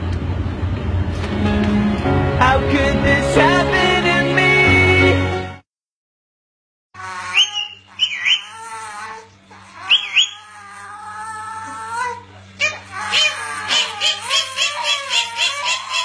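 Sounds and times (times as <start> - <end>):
parakeet squawks: 7.0 - 10.8, 12.6 - 16.0.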